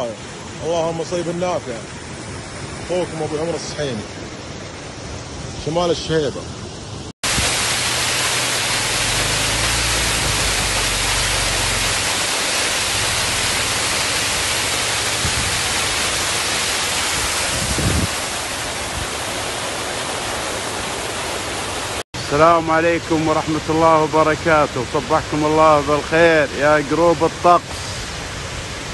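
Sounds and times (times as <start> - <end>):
water pouring down waterfall: 7.2 - 28.9.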